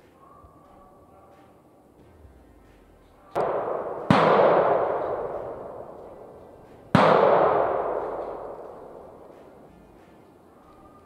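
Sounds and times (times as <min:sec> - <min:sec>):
shotgun shots echoing: 0:03.4 - 0:09.7.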